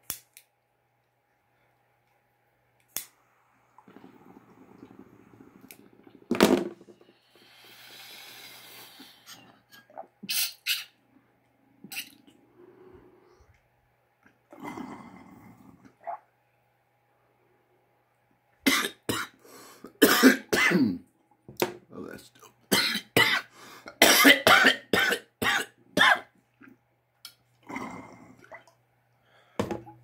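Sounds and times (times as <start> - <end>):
lighter clicking: 2.8 - 3.1
water bubbling in bong: 3.8 - 6.3
long breathy inhale: 7.0 - 9.5.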